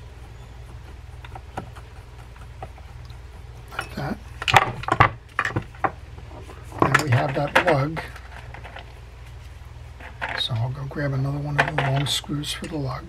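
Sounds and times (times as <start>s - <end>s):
steady low hum: 0.0s - 13.0s
metal parts clinking and knocking: 3.7s - 5.9s, 6.8s - 9.0s, 10.0s - 10.6s, 11.5s - 12.8s.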